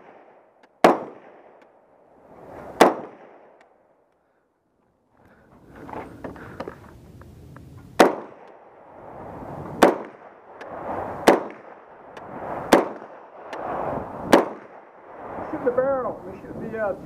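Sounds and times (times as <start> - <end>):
rifle gunshots: 0.0 - 1.8, 2.6 - 3.6, 8.0 - 8.8, 9.8 - 15.0.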